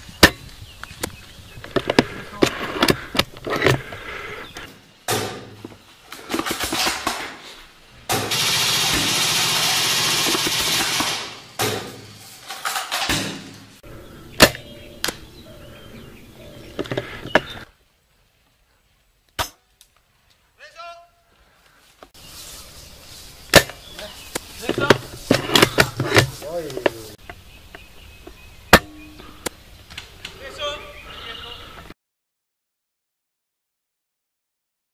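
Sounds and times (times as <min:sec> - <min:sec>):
airsoft shots cracking: 0:08.1 - 0:12.2.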